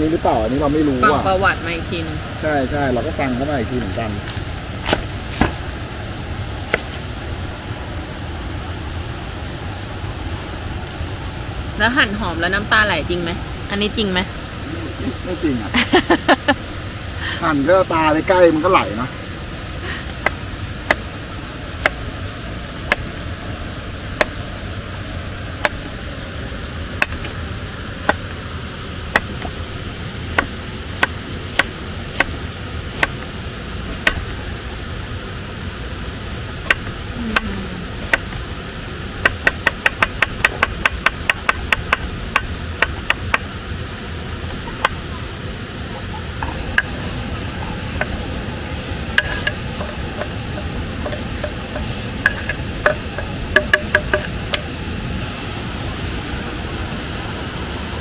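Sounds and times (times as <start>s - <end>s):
waterfall rushing hiss: 0.0s - 58.0s.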